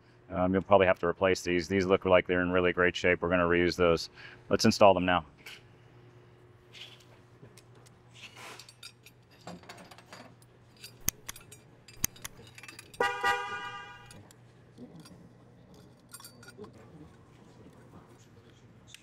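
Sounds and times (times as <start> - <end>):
faint metallic clinks: 8.6 - 13.0, 14.0 - 16.8.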